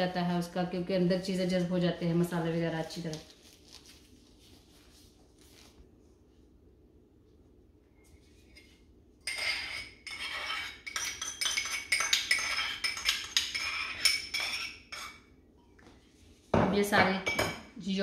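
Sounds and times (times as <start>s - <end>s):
metal spoon scraping and clinking bowl: 8.5s - 15.3s.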